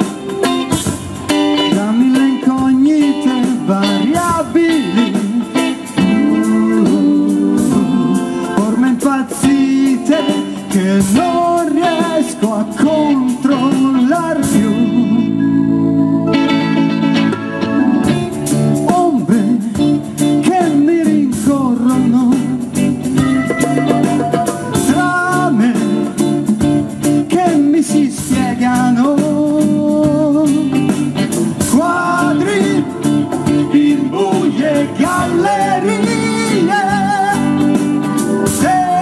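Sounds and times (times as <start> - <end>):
live band playing instrumental: 0.0 - 39.0
wavering lead melody: 23.2 - 25.5.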